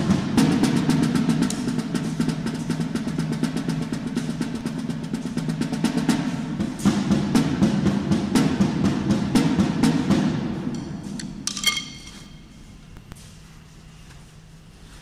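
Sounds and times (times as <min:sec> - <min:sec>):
percussion drum track: 0:00.0 - 0:12.8.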